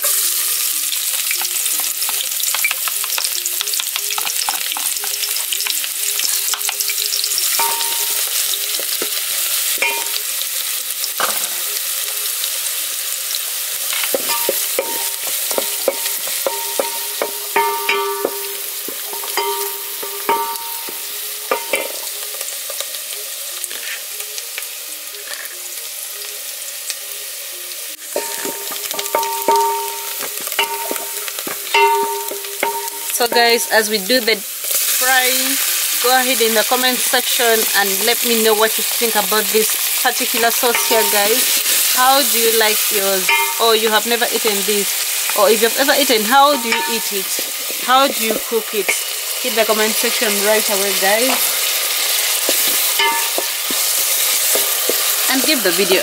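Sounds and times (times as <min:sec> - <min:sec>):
onions sizzling in oil: 0:00.0 - 0:56.0
wooden spoon knocking pan: 0:07.5 - 0:09.1, 0:14.1 - 0:22.1, 0:28.2 - 0:34.0, 0:40.2 - 0:41.9, 0:43.2 - 0:44.5, 0:46.1 - 0:49.0, 0:52.4 - 0:55.6.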